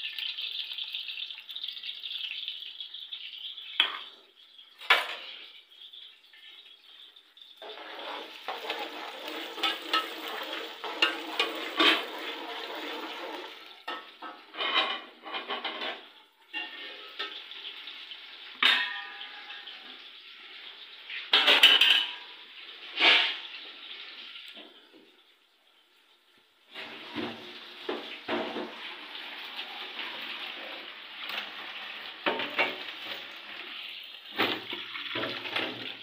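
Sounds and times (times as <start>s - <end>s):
kitchen tap water running: 0.0s - 25.1s, 26.7s - 36.0s
pots and dishes clattering: 3.7s - 5.5s, 7.6s - 17.8s, 18.5s - 20.1s, 21.1s - 23.6s, 26.7s - 36.0s
water gushing and splashing: 7.6s - 13.7s.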